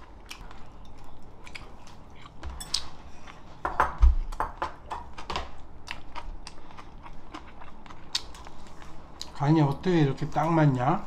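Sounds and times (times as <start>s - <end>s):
person chewing: 0.0s - 3.6s, 5.5s - 9.4s.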